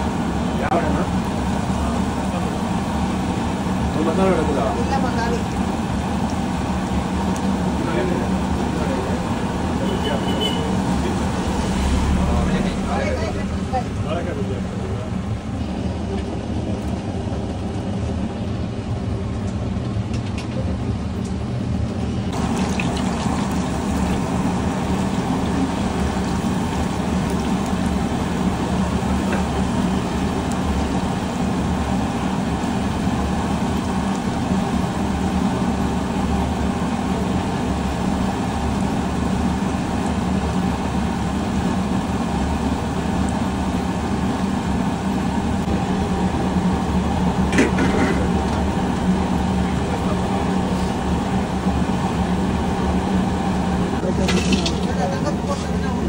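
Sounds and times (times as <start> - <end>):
oil sizzling: 0.0 - 14.0, 22.3 - 55.8
low rumble: 11.1 - 14.0.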